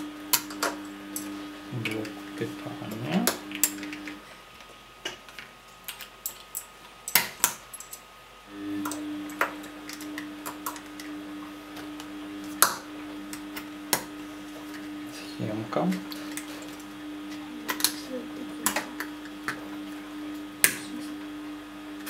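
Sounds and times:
low hum: 8.5s - 22.0s.

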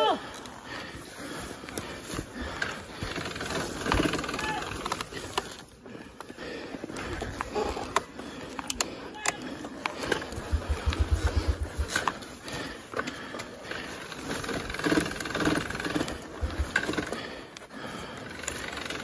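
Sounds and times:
bike rattles and knocks: 1.7s - 19.0s
dirt bike engine thumping: 10.1s - 12.2s.

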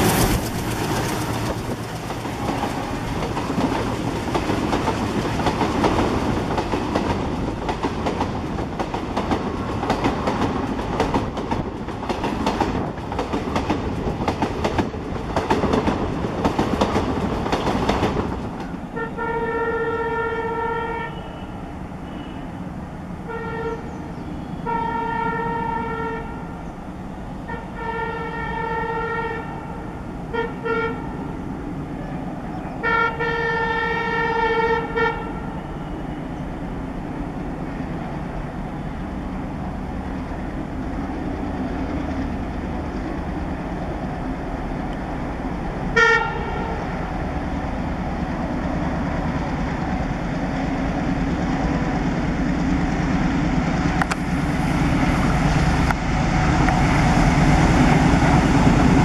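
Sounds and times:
train wheels clattering over rail joints: 0.0s - 18.8s
diesel locomotive rumble: 0.0s - 59.0s
locomotive horn blasts: 18.9s - 22.5s, 23.2s - 26.5s, 27.5s - 31.2s, 32.8s - 36.2s, 45.9s - 46.9s.

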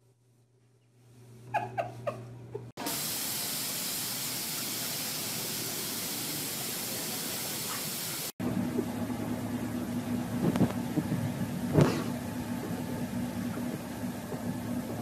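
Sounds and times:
steady loud hiss: 2.8s - 8.3s.

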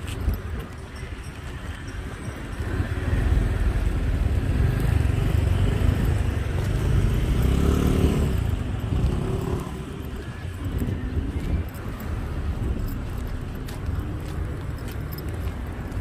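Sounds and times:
vehicle passing: 2.6s - 12.9s.

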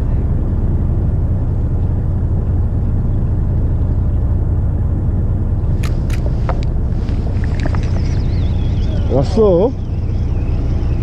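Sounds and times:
boat engine low rumble: 0.0s - 11.0s
sharp clicks: 5.8s - 6.7s.

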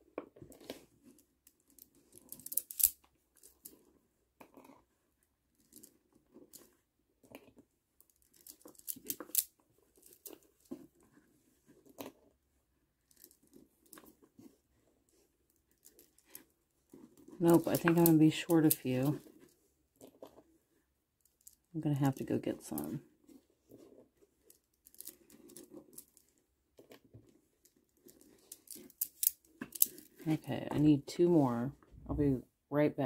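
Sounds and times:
plastic beads clicking: 1.4s - 3.8s, 8.0s - 10.4s, 24.4s - 26.9s, 27.6s - 30.2s.

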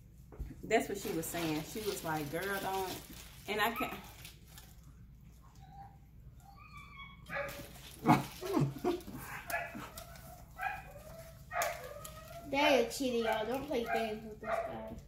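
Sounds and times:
dogs whining and yipping: 5.4s - 14.7s.

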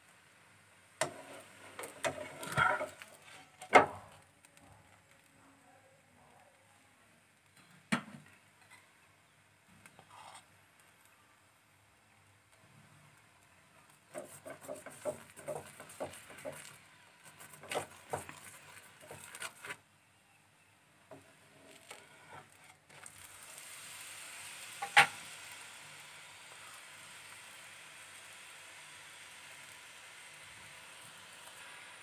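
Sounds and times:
frying sizzle: 0.0s - 5.3s, 7.2s - 19.8s, 20.7s - 32.0s
spoon scraping and tapping pan: 1.0s - 4.0s, 14.1s - 19.3s, 24.8s - 25.2s.

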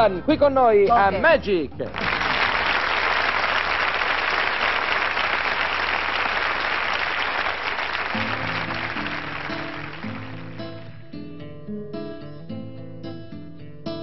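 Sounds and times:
audience applauding: 1.9s - 11.0s
plucked guitar music: 8.1s - 14.0s.

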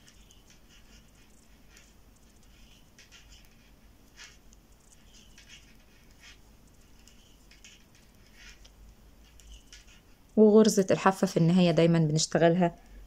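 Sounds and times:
metal knitting needles clicking: 0.0s - 10.4s.

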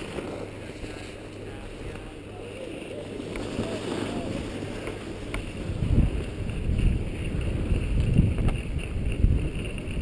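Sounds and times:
wind buffeting microphone: 3.0s - 10.0s.

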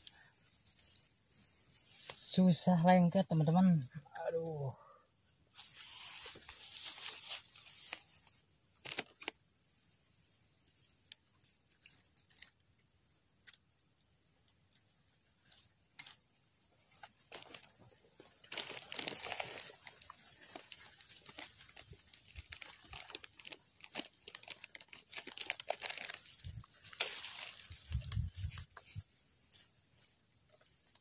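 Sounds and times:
rustling against microphone: 5.5s - 9.3s, 16.8s - 31.0s.

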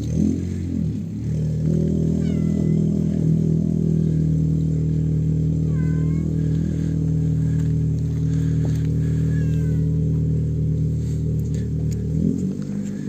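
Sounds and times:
cat meowing: 2.1s - 3.1s, 5.7s - 6.4s, 9.2s - 10.0s.

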